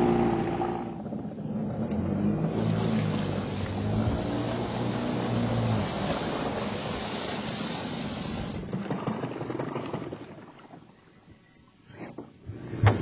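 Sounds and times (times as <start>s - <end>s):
faint high insect trill: 0.0s - 6.0s, 6.6s - 13.0s
motor engine running: 2.4s - 7.5s.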